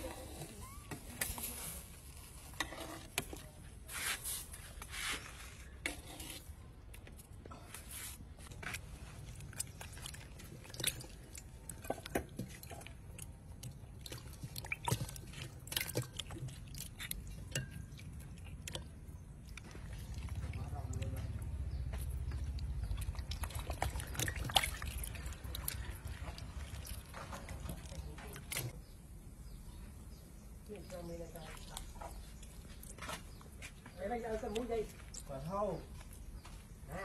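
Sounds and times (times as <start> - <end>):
wet squelches and splashes: 6.9 - 28.8, 34.4 - 36.4.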